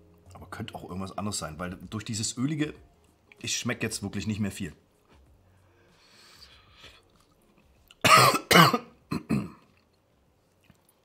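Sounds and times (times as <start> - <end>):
man coughing: 8.0 - 9.6.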